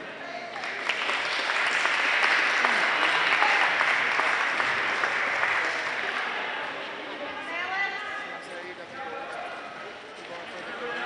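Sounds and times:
spectators clapping: 0.4 - 6.8.

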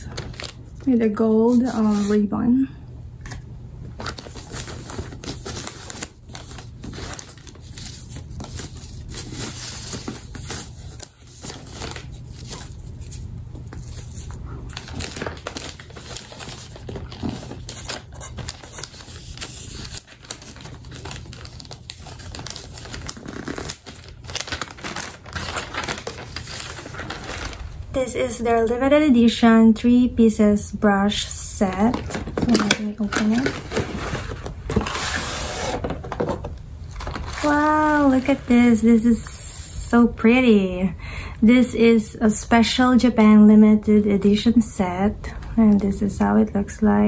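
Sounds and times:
wrapping paper crinkling: 0.0 - 2.2, 4.0 - 27.9, 31.6 - 36.2, 36.8 - 39.3.

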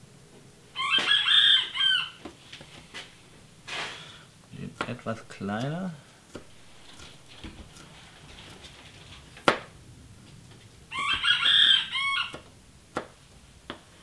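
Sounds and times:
rooster crowing: 0.7 - 2.2, 10.9 - 12.5.

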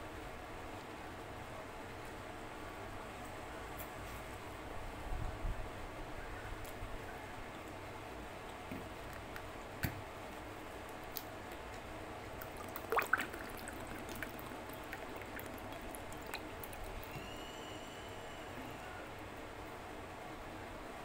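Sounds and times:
steady background hiss: 0.0 - 21.0
soft wet eating sounds: 6.6 - 9.6, 10.3 - 17.3.

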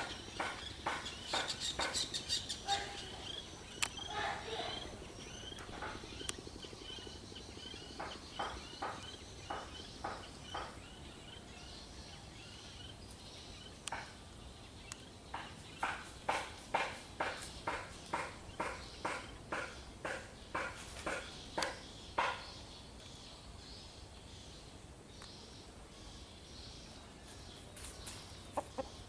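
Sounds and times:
kingfisher calling: 0.0 - 11.0
sharp clicks: 3.7 - 4.0, 5.5 - 6.4.

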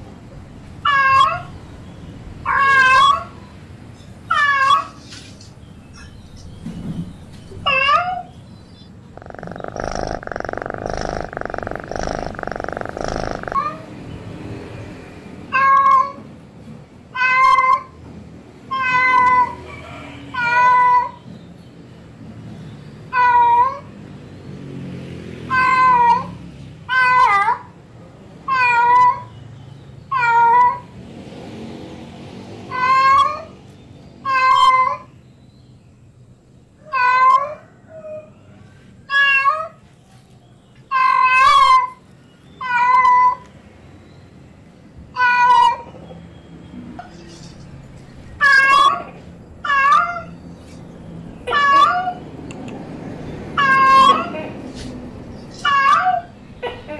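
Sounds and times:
cat yowling: 0.8 - 1.5, 2.4 - 3.4, 9.2 - 13.9, 18.7 - 19.6, 25.5 - 27.7, 30.1 - 30.9, 32.7 - 33.5, 34.2 - 35.1, 36.8 - 38.3, 40.9 - 42.0, 42.6 - 43.4, 45.2 - 46.0, 48.4 - 50.4, 51.4 - 52.2, 53.6 - 54.4, 55.6 - 56.3
rough steady noise: 8.8 - 13.8.

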